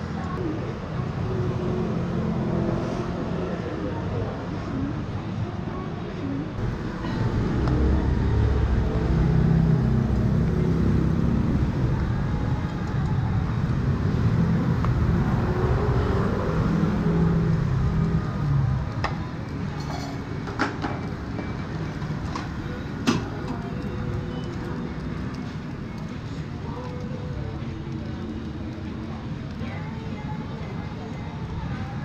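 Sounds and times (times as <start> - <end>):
street traffic rumble: 0.0 - 32.0.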